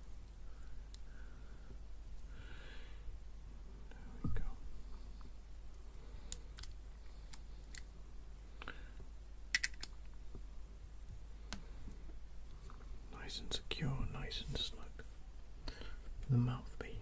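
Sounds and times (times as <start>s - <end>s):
metal vape parts clicking: 9.5s - 9.9s.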